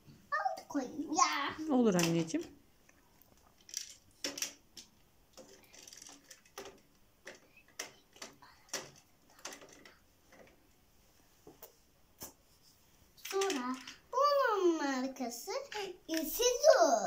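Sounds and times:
toy cars knocking on plastic: 3.7 - 10.6.

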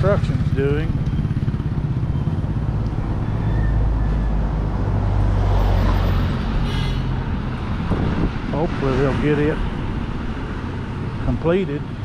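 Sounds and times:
motorcycle engine: 0.0 - 6.6
deep engine rumble overtaking: 0.0 - 12.0.

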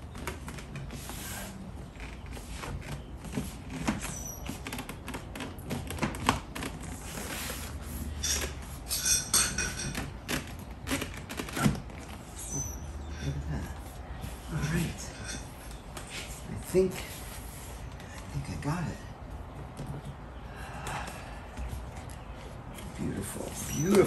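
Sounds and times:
rubbing squeaks: 0.0 - 16.5, 22.8 - 24.0.

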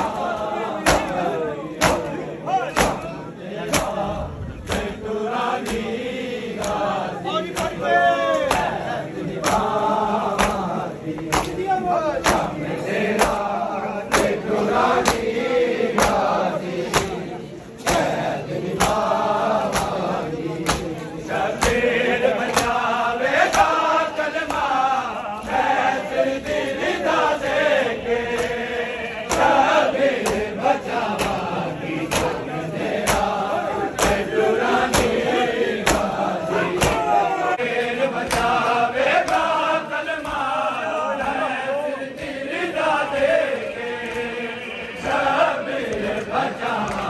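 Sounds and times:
hands slapping bare chests: 0.0 - 6.0, 6.6 - 17.2, 17.8 - 25.8, 28.3 - 28.6, 29.3 - 37.1, 38.1 - 41.4, 45.8 - 47.0
men chanting together: 0.0 - 47.0.

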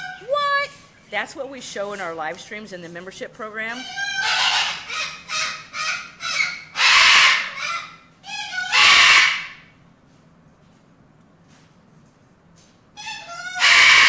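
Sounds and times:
parrot squawking and screaming: 0.0 - 0.3, 3.8 - 9.7, 13.0 - 14.0.

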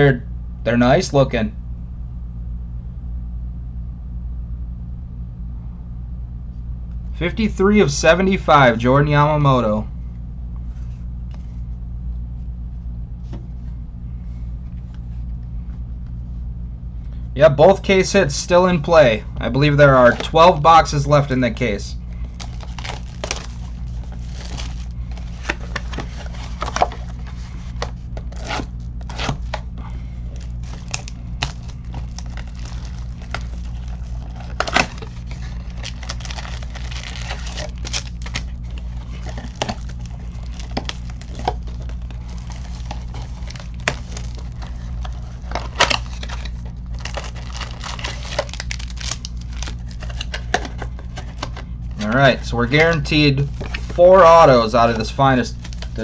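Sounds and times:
steady low hum: 0.0 - 56.0
packaging tearing and crinkling: 22.1 - 29.7, 30.3 - 56.0.

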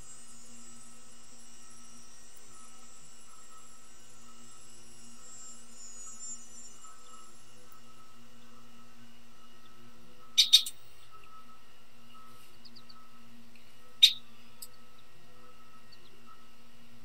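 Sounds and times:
faint steady hum: 0.0 - 17.0
bird chirping calls: 9.6 - 11.4, 13.7 - 15.1.

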